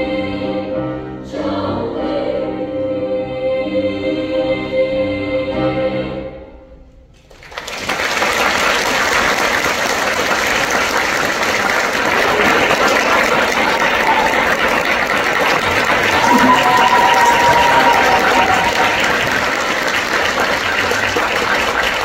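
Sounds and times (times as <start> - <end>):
choir singing a chord: 0.0 - 6.8, 16.1 - 20.0
audience applause: 7.3 - 22.0.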